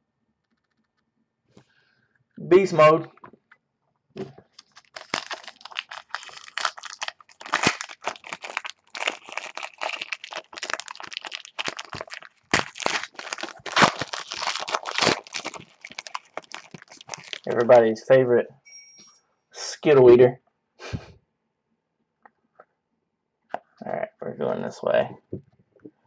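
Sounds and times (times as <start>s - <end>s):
wrapper tearing and crinkling: 4.5s - 17.8s.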